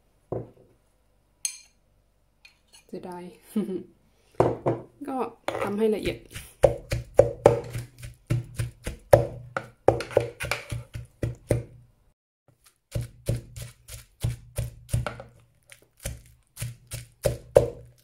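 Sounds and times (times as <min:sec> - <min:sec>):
pestle pounding in mortar: 0:05.5 - 0:11.8, 0:12.9 - 0:15.4, 0:16.0 - 0:18.0.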